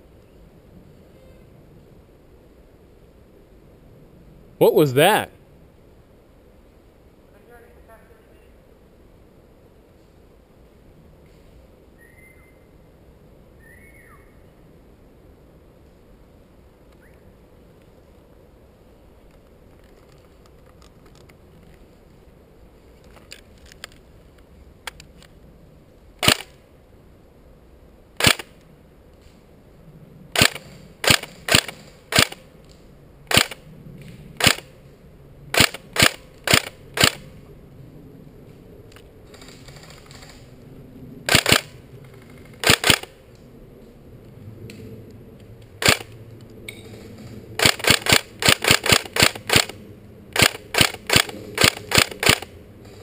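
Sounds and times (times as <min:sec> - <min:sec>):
airsoft gun shots cracking: 0:26.2 - 0:26.5, 0:28.2 - 0:28.5, 0:34.4 - 0:34.7, 0:42.6 - 0:43.1.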